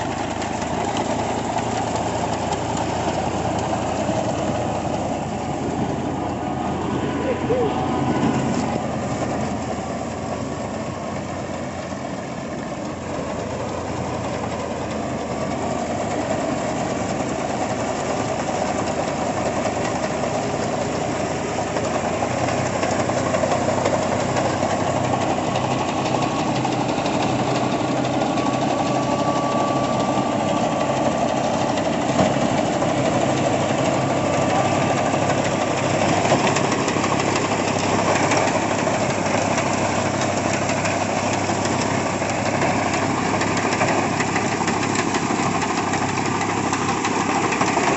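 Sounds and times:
tractor diesel engine running: 0.0s - 47.9s.

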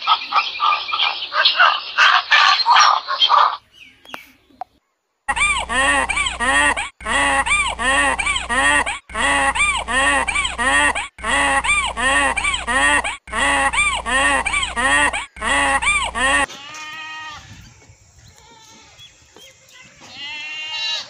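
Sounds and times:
rising and falling animal calls: 0.0s - 3.6s, 5.3s - 17.7s.

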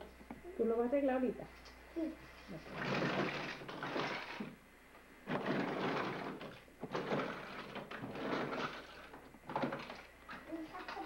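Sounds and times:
plastic toys clattering: 2.7s - 4.6s, 5.3s - 11.0s.

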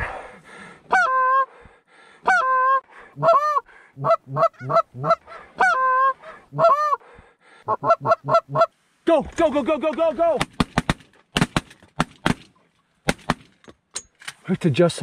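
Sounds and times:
goose call honks and clucks: 0.9s - 1.5s, 2.2s - 7.0s, 7.6s - 8.7s.

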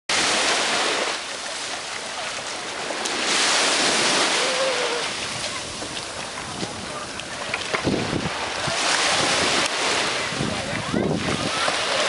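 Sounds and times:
small waves on sandy beach: 0.1s - 12.0s.

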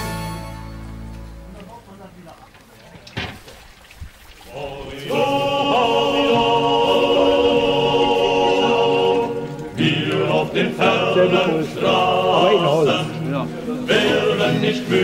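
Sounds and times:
group of voices singing: 4.5s - 15.0s.

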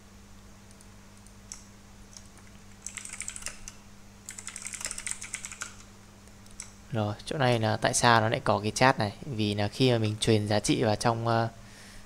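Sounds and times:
computer keyboard typing: 2.2s - 6.7s.

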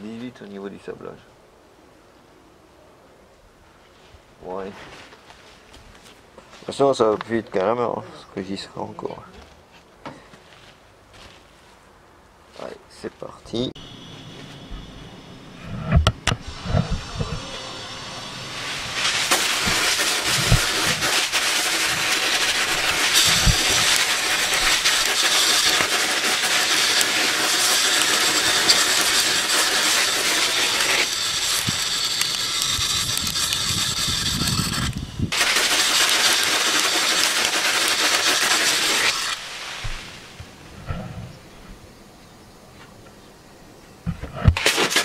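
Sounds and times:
sandblasting gun hissing: 13.8s - 40.4s.

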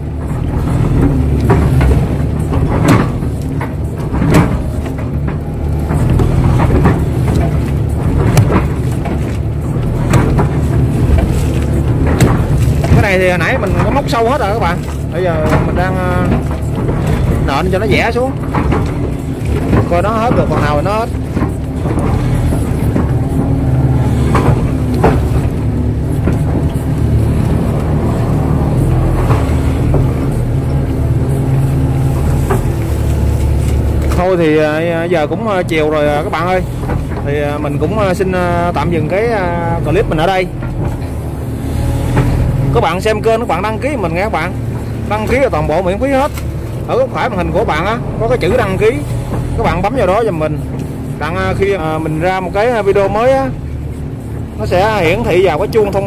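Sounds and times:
excavator bucket knocks and clunks: 0.0s - 32.8s
diesel engine running: 0.0s - 56.0s.

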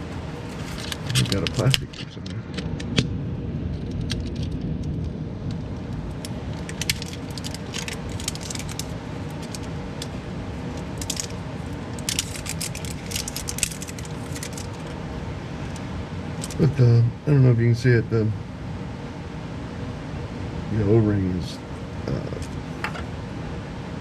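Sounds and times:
low hum: 0.0s - 24.0s
plastic crackling and clicking: 6.2s - 15.0s.

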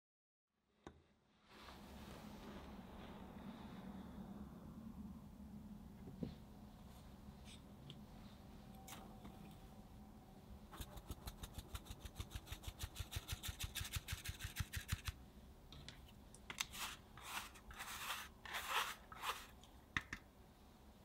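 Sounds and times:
metal sieve sifting flour: 10.8s - 15.1s, 16.7s - 19.6s.

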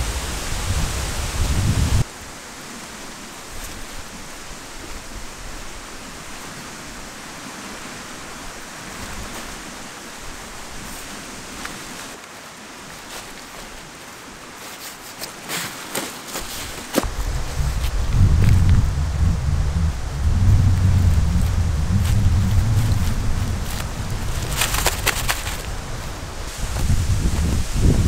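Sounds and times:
wind rushing through trees: 0.0s - 28.0s
cord handling ticks: 22.8s - 26.2s.

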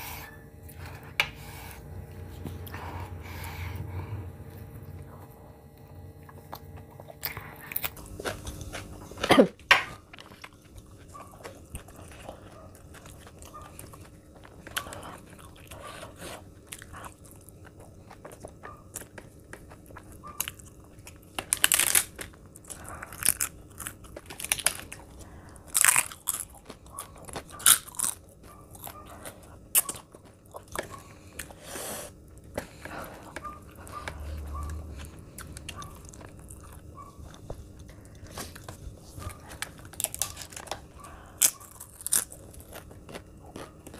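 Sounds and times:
person chewing: 0.7s - 43.9s
crisp crunches: 10.2s - 31.5s, 32.6s - 43.9s.

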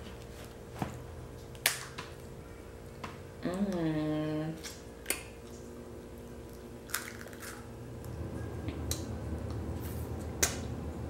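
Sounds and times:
person humming: 3.4s - 4.6s.

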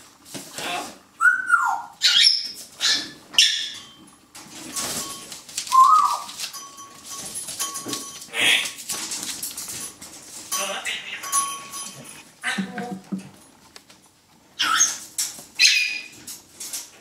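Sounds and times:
puppies yipping and squealing: 1.2s - 4.0s, 14.6s - 16.2s.

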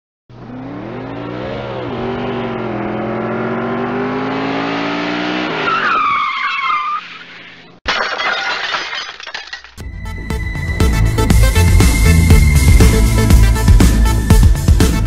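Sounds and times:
car engine accelerating: 0.3s - 5.7s
tyre screech: 5.6s - 7.7s.

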